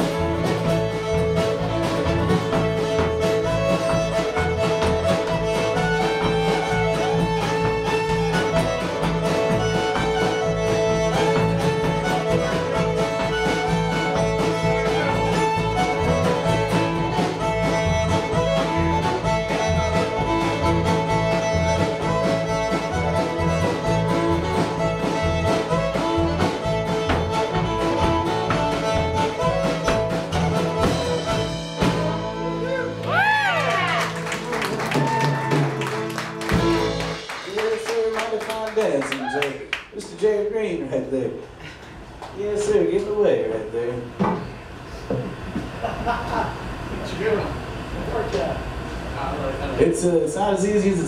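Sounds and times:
plucked upright bass: 0.0s - 33.1s, 34.6s - 37.2s
acoustic guitar: 0.0s - 38.4s
fiddle melody: 0.0s - 39.0s.

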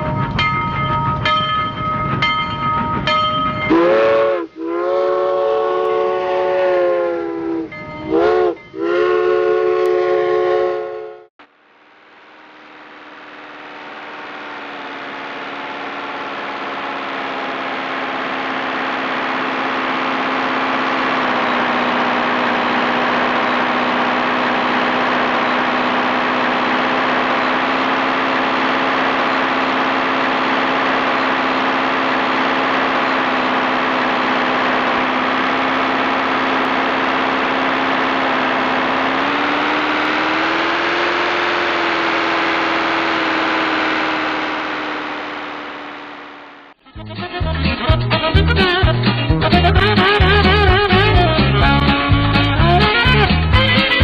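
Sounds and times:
propeller aircraft engine drone: 11.4s - 48.9s.

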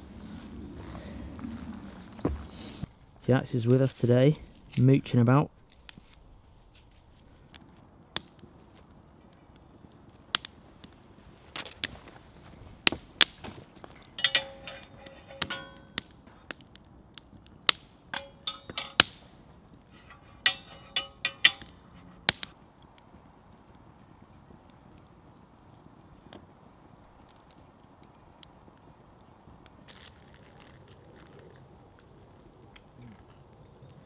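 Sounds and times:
wood fire popping: 0.0s - 34.0s
metal kettle clinking on tripod: 14.1s - 16.0s, 20.1s - 21.7s.

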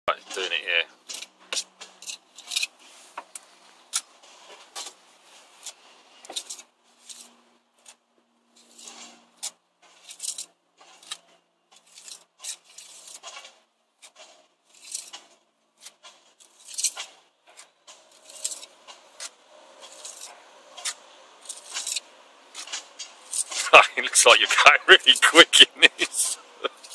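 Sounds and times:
steel tool scraping mortar: 11.8s - 13.4s, 14.0s - 15.2s.

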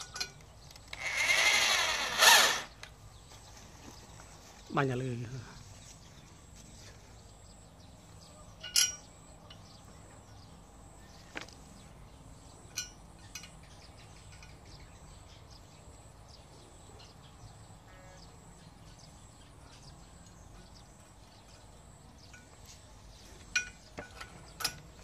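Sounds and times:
metallic clicks and clinks: 12.7s - 14.7s.

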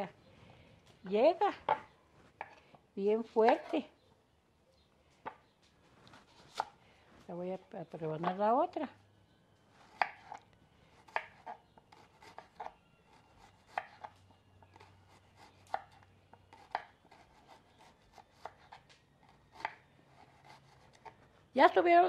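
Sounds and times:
knife slicing an onion: 3.4s - 3.9s, 6.1s - 6.8s, 9.8s - 21.2s.

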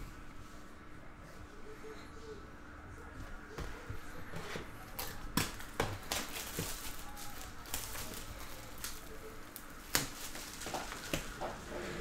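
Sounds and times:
plastic wrap crinkling: 4.8s - 11.7s.

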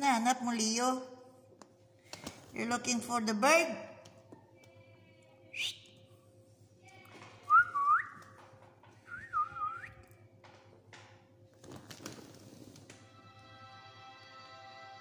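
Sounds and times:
whistled notes: 9.1s - 10.0s.

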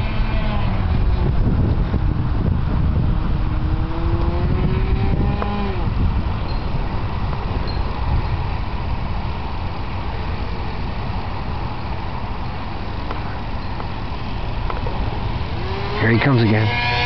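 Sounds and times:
steady low rumble: 0.0s - 17.0s
model plane engine drone: 12.8s - 17.0s.

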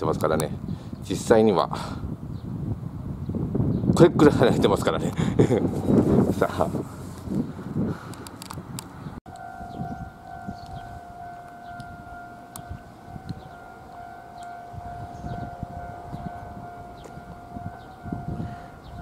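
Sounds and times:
wind rumbling on microphone: 0.0s - 19.0s
siren-like warning tone: 9.3s - 19.0s.

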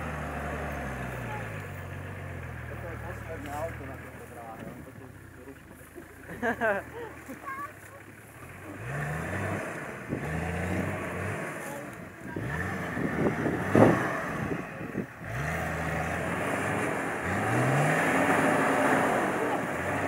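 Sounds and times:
truck engine revving: 0.0s - 20.0s.

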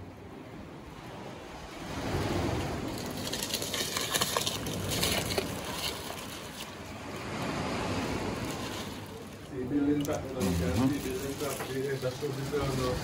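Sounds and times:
plastic bag crinkling: 10.4s - 12.8s.

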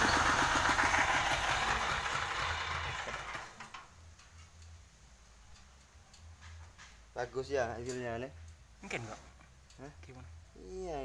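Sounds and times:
petrol engine and circular saw: 0.0s - 3.8s.

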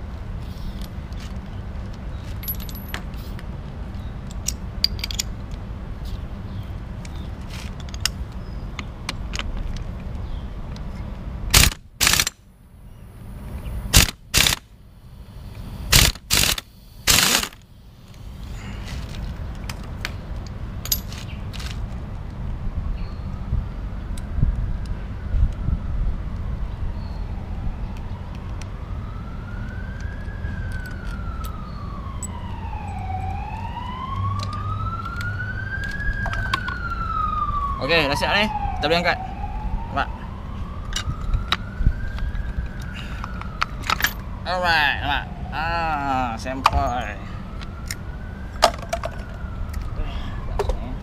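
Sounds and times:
impact wrench bursts: 11.5s - 12.4s, 13.9s - 14.6s, 15.9s - 17.6s
siren wailing: 25.0s - 51.0s.

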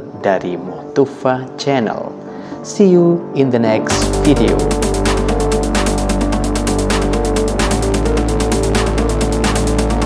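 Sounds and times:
electronic music with fast beat: 3.9s - 10.0s.

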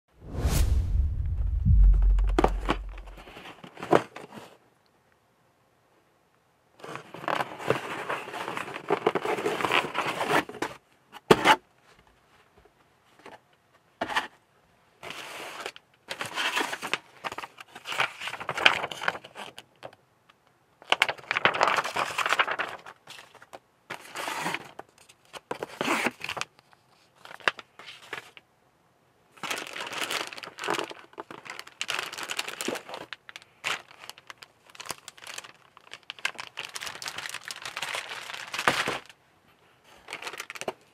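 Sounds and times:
paper and plastic bags crinkling: 20.8s - 25.8s, 29.4s - 39.2s, 39.8s - 40.9s.

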